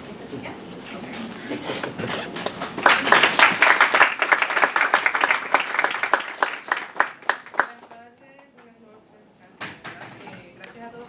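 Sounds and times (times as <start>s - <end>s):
audience applauding: 2.3s - 8.0s.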